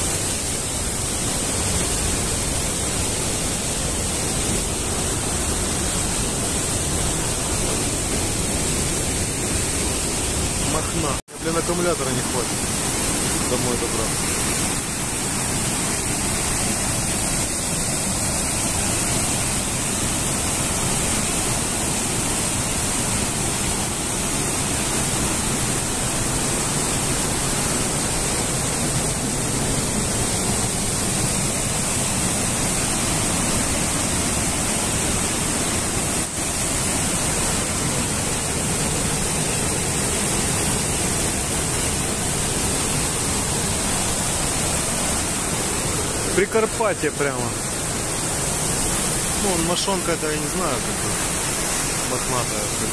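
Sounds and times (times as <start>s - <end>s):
waterfall rushing: 0.0s - 52.9s.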